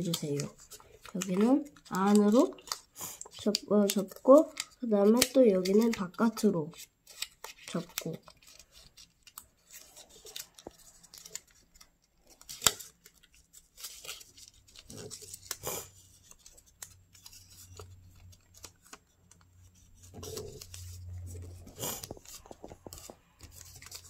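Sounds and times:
paper rustling and crackling: 0.0s - 24.0s.

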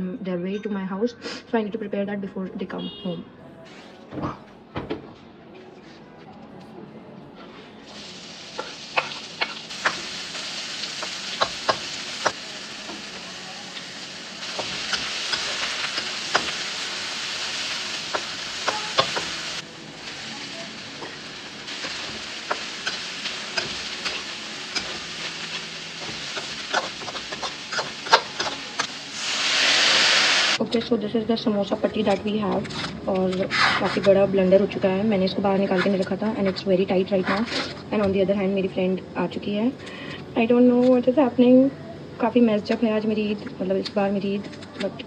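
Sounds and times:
food sizzling in a pan: 7.8s - 30.6s
spatula tapping a pan: 11.0s - 13.0s, 18.1s - 19.4s, 26.0s - 28.9s.

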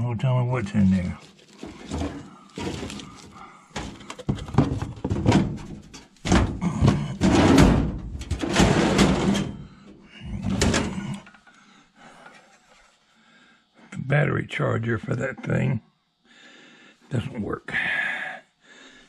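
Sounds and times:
rummaging in metal drawer: 0.8s - 9.6s, 10.4s - 11.2s.

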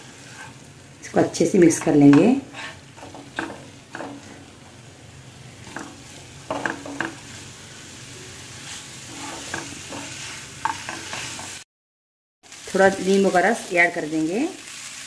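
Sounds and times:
spatula scraping a pan: 0.0s - 0.7s, 1.6s - 4.6s, 5.6s - 7.6s, 8.5s - 11.6s
meat sizzling in a pan: 0.0s - 11.7s, 12.4s - 15.0s.

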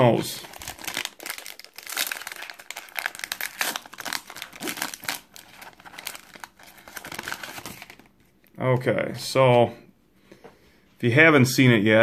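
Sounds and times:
foil wrapper crinkling: 0.4s - 8.1s.

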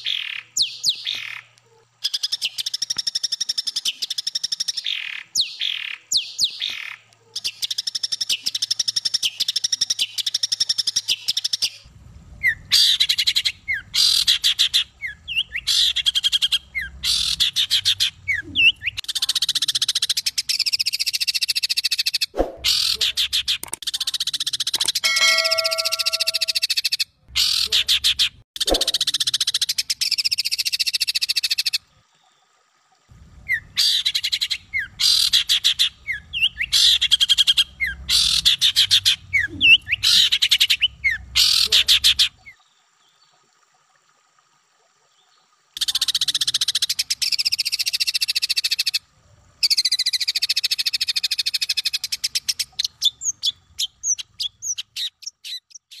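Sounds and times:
bird quick chirps: 24.8s - 27.9s.

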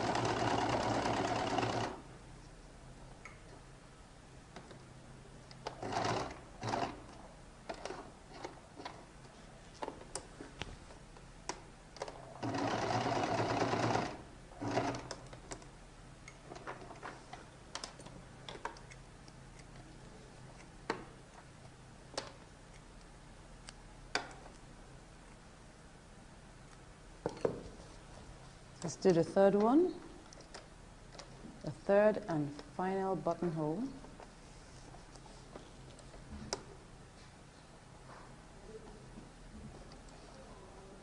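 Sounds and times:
sewing machine stitching: 0.0s - 2.0s, 5.6s - 7.1s, 12.4s - 15.2s.

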